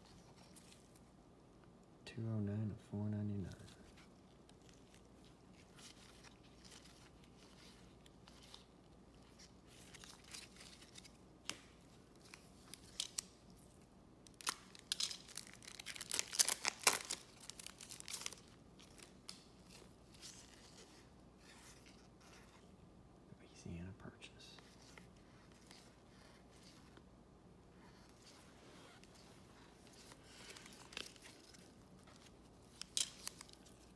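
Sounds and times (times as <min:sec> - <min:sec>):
cards clicking and rustling: 0:03.6 - 0:22.6, 0:28.0 - 0:33.9
foil pack tearing and crinkling: 0:14.3 - 0:19.2, 0:29.0 - 0:33.9.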